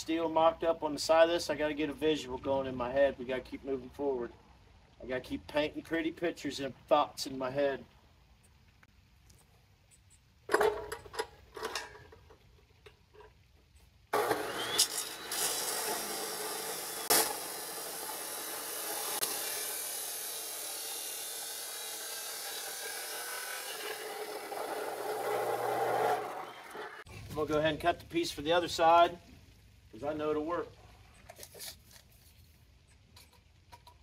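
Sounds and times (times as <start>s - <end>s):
power tool cutting steel: 14.2s - 27.1s.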